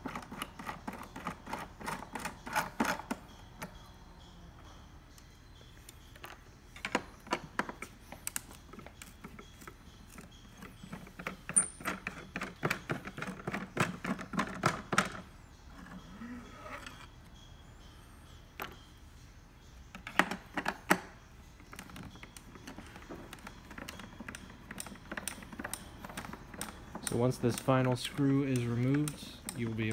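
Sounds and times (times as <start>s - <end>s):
small metal clinks: 0.0s - 29.9s
screwdriver clicking in screws: 23.4s - 29.9s.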